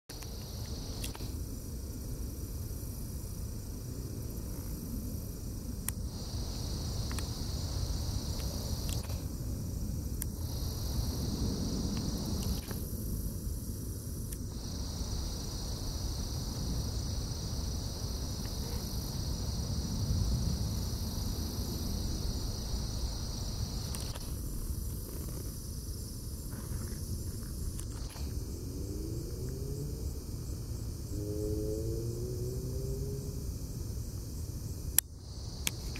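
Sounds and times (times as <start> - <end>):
continuous low rumble: 0.1 - 35.9
insects trilling: 0.1 - 35.9.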